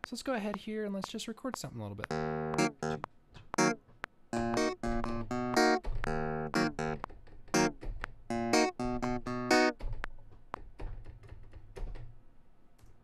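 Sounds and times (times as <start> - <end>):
staccato clavinet notes: 2.0 - 3.8, 4.4 - 7.0, 7.6 - 9.8.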